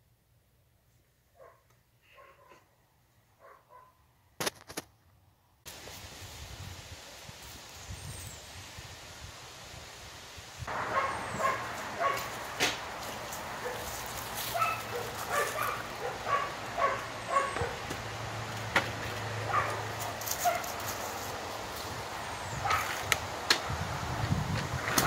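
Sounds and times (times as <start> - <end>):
dog barking: 1.4 - 2.7, 3.4 - 4.0, 10.7 - 12.4, 13.6 - 13.9, 14.5 - 17.9, 19.4 - 20.8, 22.6 - 23.0.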